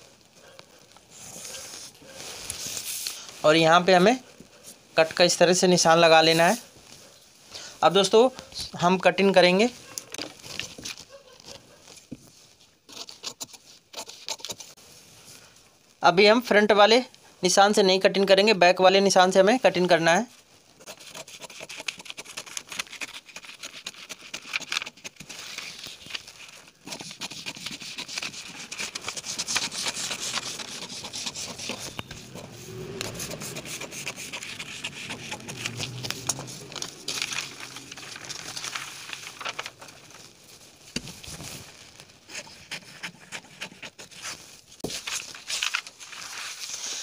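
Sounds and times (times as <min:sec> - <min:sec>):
paper rustling and crinkling: 0:00.0 - 0:03.4, 0:09.7 - 0:14.8, 0:20.8 - 0:47.0
scissors snipping paper: 0:20.8 - 0:32.1.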